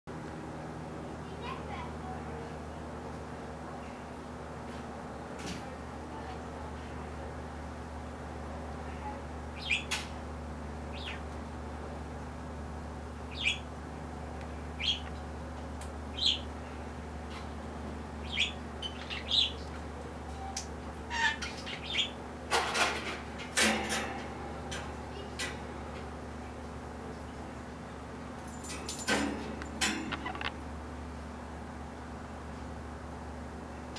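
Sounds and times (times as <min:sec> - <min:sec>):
steady low hum: 0:00.1 - 0:33.9
bird chirping: 0:09.6 - 0:09.9, 0:13.3 - 0:13.7, 0:14.8 - 0:15.1, 0:18.2 - 0:19.7.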